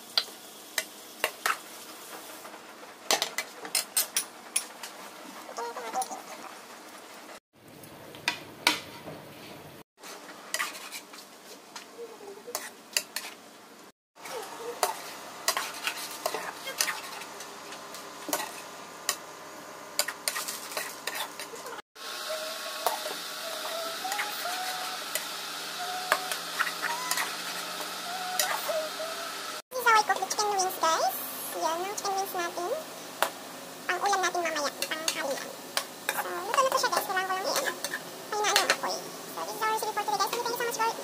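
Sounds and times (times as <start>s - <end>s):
food sizzling: 0.0s - 41.0s
spatula scraping a pan: 10.0s - 11.3s, 12.5s - 13.4s, 14.8s - 17.5s, 20.0s - 21.6s, 26.1s - 28.8s.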